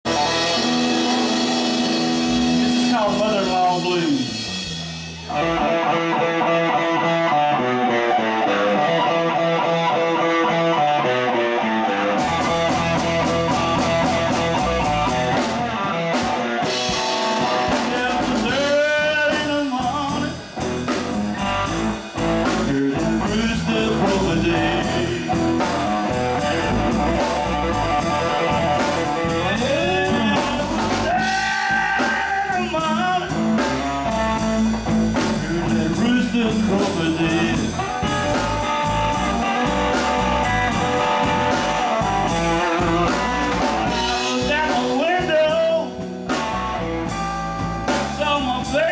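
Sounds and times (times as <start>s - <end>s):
drum kit: 0.0s - 9.4s, 12.0s - 48.9s
bass guitar: 0.0s - 48.9s
electric guitar: 0.0s - 48.9s.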